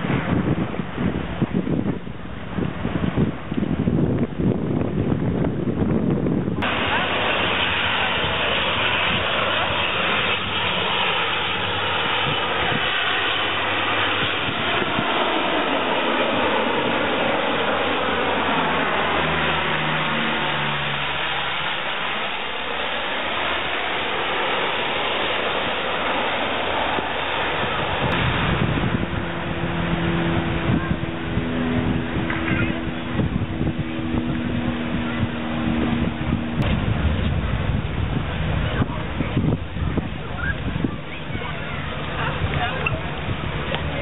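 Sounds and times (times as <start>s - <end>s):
propeller plane flying overhead: 0.0s - 44.0s.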